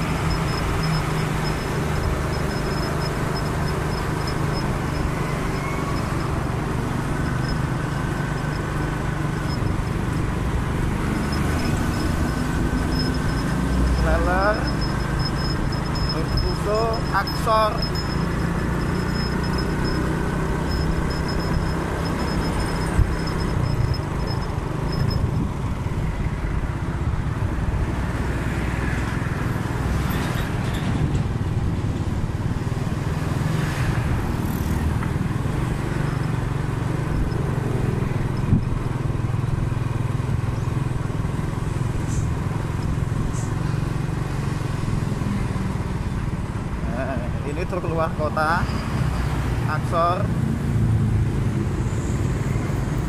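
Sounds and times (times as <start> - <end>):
motorcycle engine running: 0.0 - 27.4
road noise: 0.0 - 53.0
surrounding traffic: 0.0 - 53.0.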